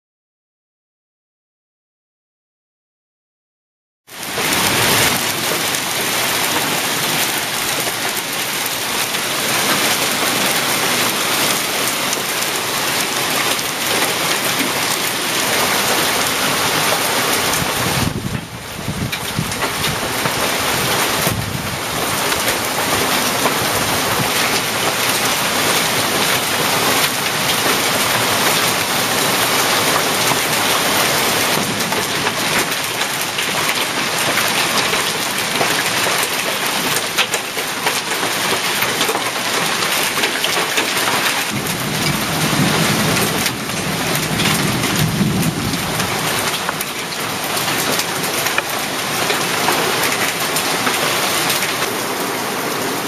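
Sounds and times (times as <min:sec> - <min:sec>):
heavy rain and hail pelting: 0:04.1 - 0:53.0
thunder rumble: 0:09.0 - 0:34.9, 0:41.5 - 0:47.9.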